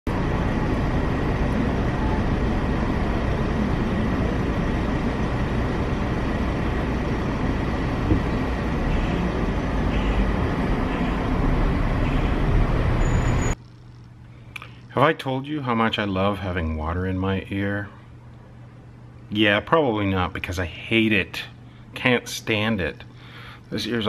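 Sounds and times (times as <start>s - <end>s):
car engine rumble: 0.1s - 13.6s
car cabin noise: 7.6s - 13.5s.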